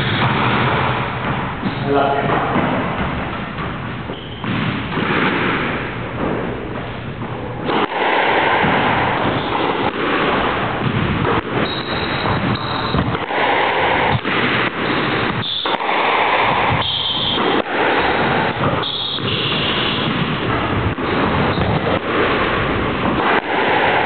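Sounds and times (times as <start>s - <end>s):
constant rushing noise: 0.0s - 24.0s
squash ball hitting rackets and walls: 0.0s - 24.0s
shoes squeaking on wooden floor: 1.6s - 3.2s, 4.1s - 4.5s, 11.6s - 13.1s.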